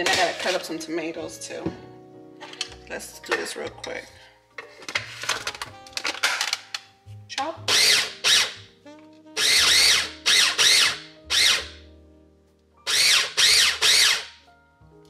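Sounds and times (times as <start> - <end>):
food chopper motor whirring: 7.7 - 8.6, 9.4 - 11.8, 12.9 - 14.4.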